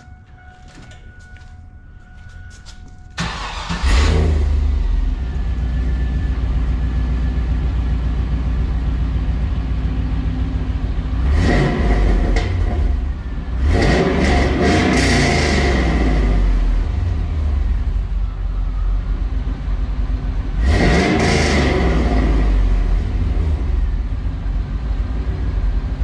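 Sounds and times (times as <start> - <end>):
car engine starting and idling: 0.0 - 26.0
engine revving: 3.2 - 5.2, 11.1 - 17.4, 20.6 - 23.9.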